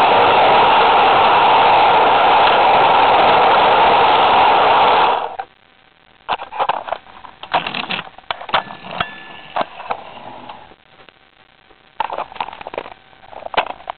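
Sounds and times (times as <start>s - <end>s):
model train rushing on track: 0.0s - 5.4s.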